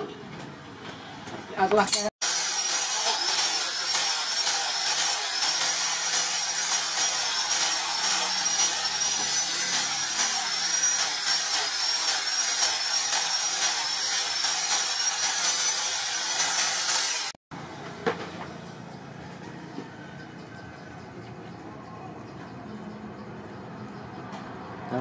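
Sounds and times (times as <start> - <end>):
angle grinder sanding wood: 2.2 - 17.4.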